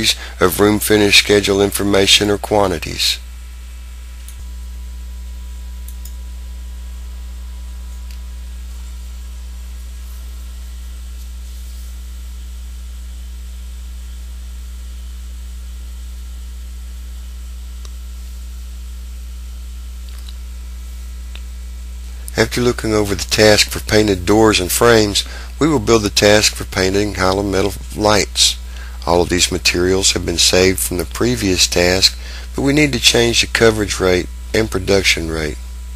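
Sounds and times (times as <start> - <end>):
electrical mains hum: 0.0 - 35.9.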